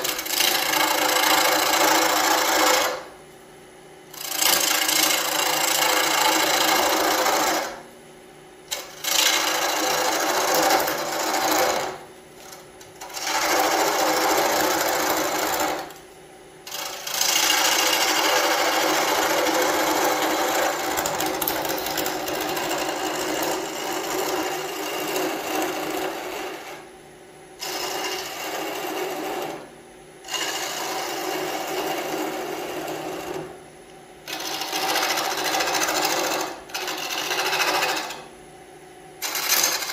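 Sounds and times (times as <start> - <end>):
lathe gouge rasping chatter: 0.0 - 3.0, 4.1 - 7.7, 8.7 - 12.0, 13.0 - 15.8, 16.7 - 26.8, 27.6 - 29.6, 30.3 - 33.5, 34.3 - 38.2, 39.2 - 39.9
lathe running hum: 0.0 - 3.2, 4.1 - 7.9, 8.7 - 16.0, 16.6 - 26.9, 27.6 - 33.6, 34.2 - 38.3, 39.2 - 39.9.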